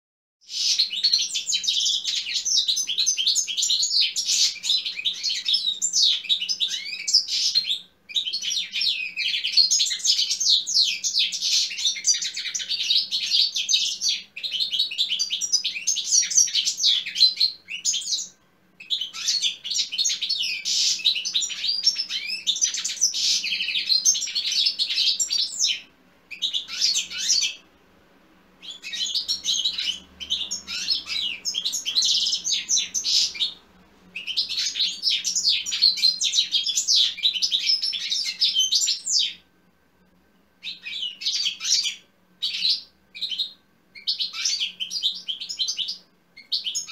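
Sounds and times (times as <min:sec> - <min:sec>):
goldfinch twittering song: 0:00.4 - 0:27.6, 0:28.6 - 0:33.6.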